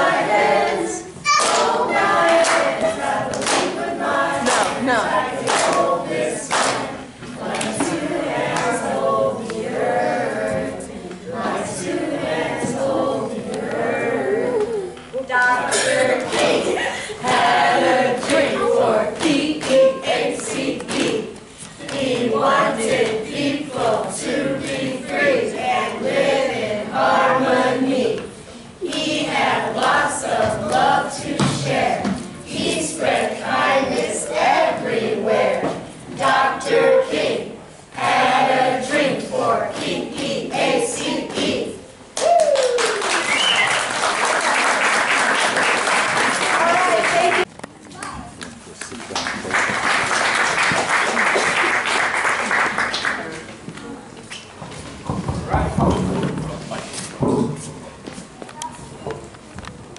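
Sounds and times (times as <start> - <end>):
group singing unaccompanied: 0.0 - 41.9
children cheering: 1.2 - 1.7, 42.2 - 44.0
hand clapping: 1.3 - 2.7, 3.3 - 3.8, 4.4 - 4.8, 5.4 - 5.9, 6.5 - 6.9, 42.2 - 53.4
applause: 42.2 - 47.5, 48.8 - 53.5
crowd cheering: 42.2 - 47.5.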